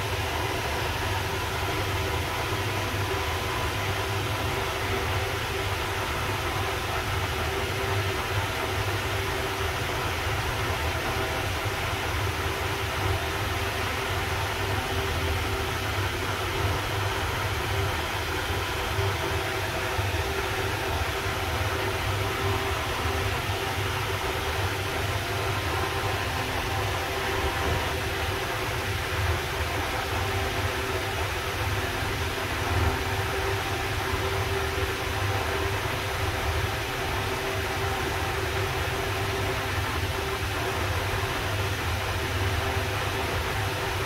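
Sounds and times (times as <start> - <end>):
wall fan running: 0.0 - 44.0.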